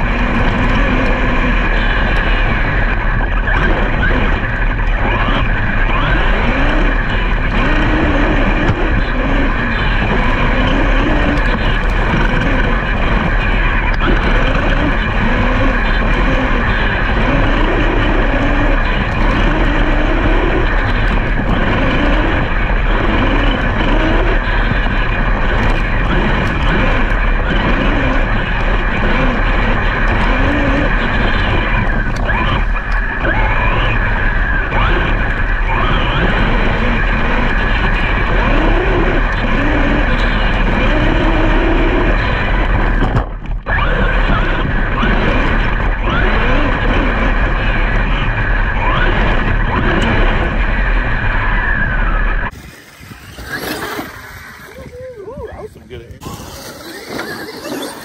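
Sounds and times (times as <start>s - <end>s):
low rumble: 0.0s - 58.0s
electric motors whining: 51.3s - 58.0s.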